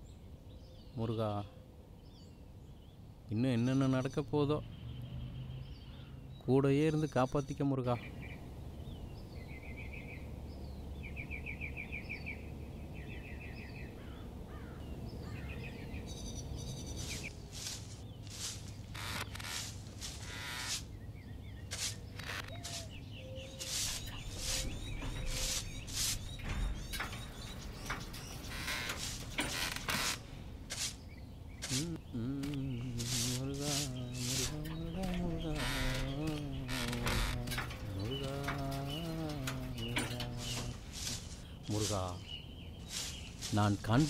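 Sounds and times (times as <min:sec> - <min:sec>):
birds trilling: 0:00.0 - 0:44.0
pole brushing roof beams: 0:16.9 - 0:21.0, 0:21.6 - 0:44.0
harsh bird call: 0:31.6 - 0:44.0
man chanting a held tone: 0:31.8 - 0:40.8.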